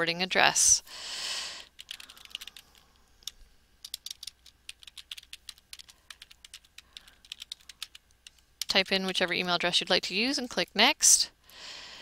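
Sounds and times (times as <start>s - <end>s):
computer keyboard typing: 1.7s - 9.4s.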